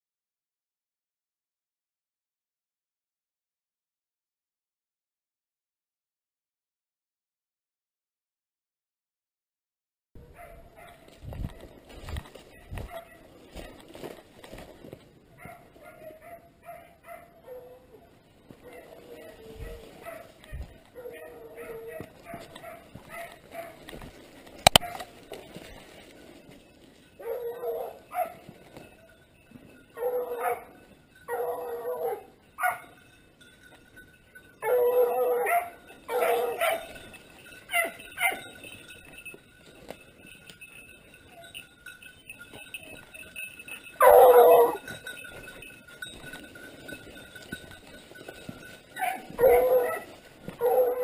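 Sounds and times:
hounds baying: 10.2 - 14.6, 15.3 - 33.2, 34.5 - 51.0.

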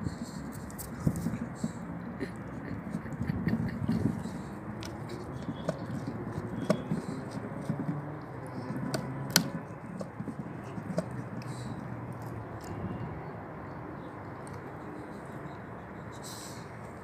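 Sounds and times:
dog gnawing on wood: 4.0 - 12.7.

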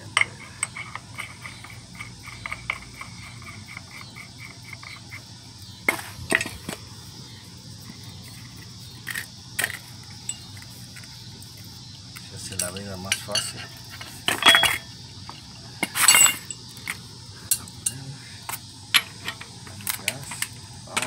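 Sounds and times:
metal parts clinking: 12.4 - 14.9, 15.8 - 16.6.

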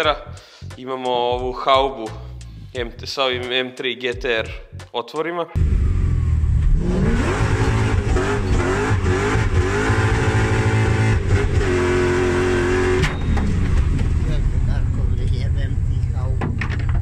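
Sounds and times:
car engine revving: 5.6 - 17.0.

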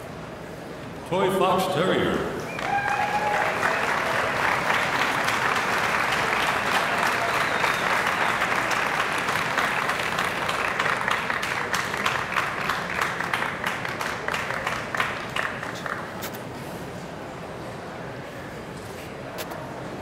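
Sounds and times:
audience applauding: 2.5 - 16.2.

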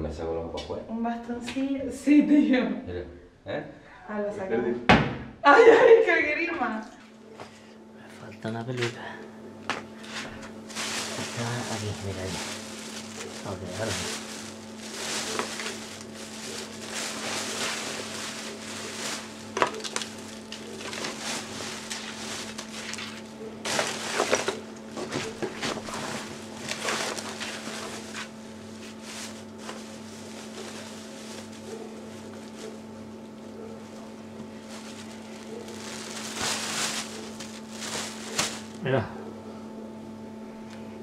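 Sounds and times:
low electrical hum: 0.0 - 41.0
fabric rustling: 10.0 - 38.8.

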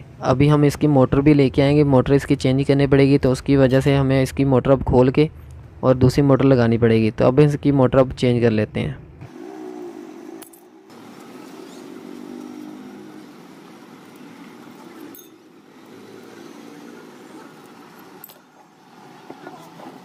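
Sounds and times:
metal parts clinking and rattling: 10.4 - 10.8, 15.0 - 15.6, 17.8 - 18.5.

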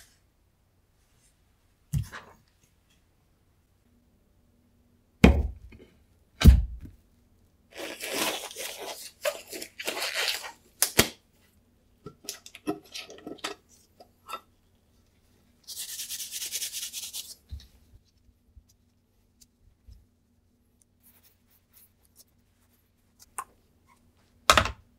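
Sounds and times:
rustling and tearing: 7.7 - 11.0.

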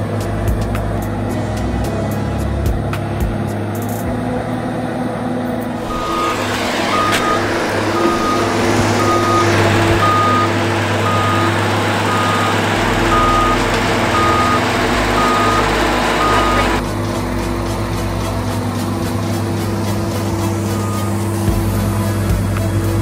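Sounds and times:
engine droning: 0.0 - 23.0
motion alarm beeps: 5.8 - 16.8, 20.7 - 21.3.

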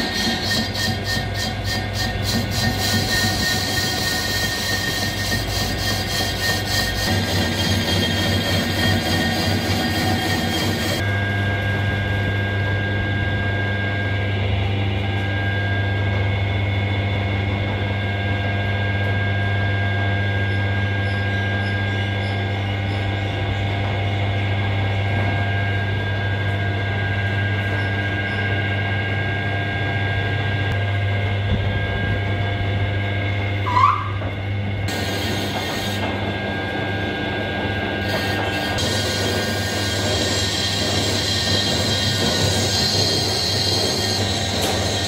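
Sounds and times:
lathe motor hum: 0.0 - 15.3, 34.4 - 45.0.

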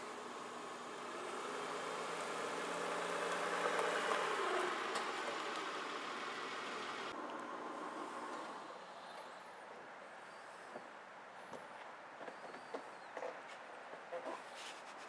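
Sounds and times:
car driving past: 0.7 - 8.8.

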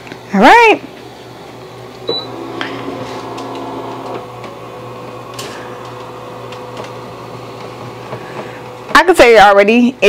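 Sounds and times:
motor humming with clicks: 0.9 - 9.0
plate sliding scrape: 2.3 - 4.2.

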